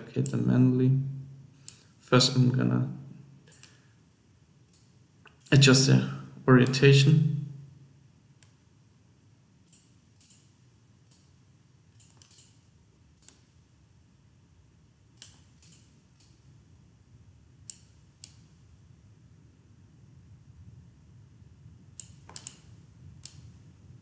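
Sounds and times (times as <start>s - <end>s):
low room hum: 0.0s - 24.0s
computer mouse clicks: 9.7s - 10.5s, 12.0s - 12.6s, 13.2s - 13.5s, 15.2s - 16.4s, 17.7s - 18.5s, 22.0s - 23.6s.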